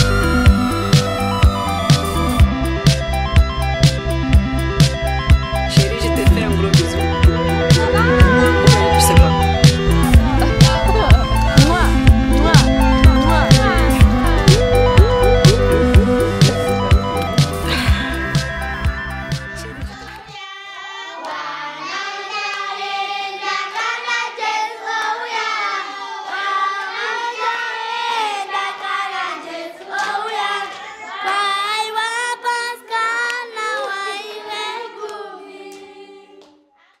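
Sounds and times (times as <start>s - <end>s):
children singing unaccompanied: 19.6s - 36.7s.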